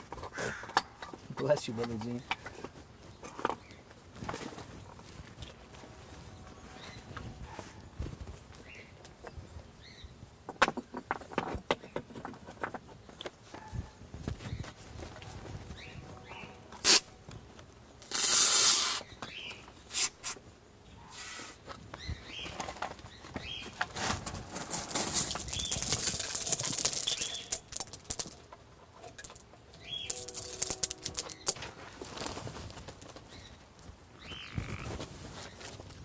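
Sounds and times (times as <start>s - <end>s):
rustling: 21.1s - 36.0s
stones clicking together: 24.6s - 31.6s.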